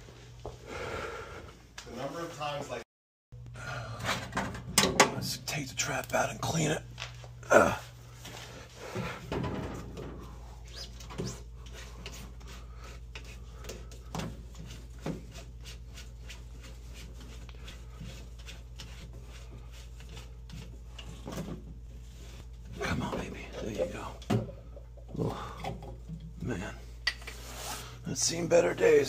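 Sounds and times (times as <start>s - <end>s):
steady low hum: 3.4s - 29.0s.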